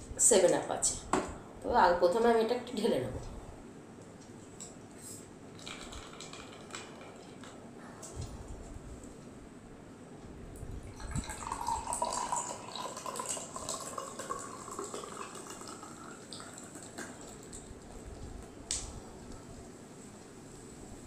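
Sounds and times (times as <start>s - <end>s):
bubbles fizzing: 5.6s - 7.5s, 10.9s - 18.0s
soda pouring into glass: 5.6s - 7.5s, 10.9s - 18.0s.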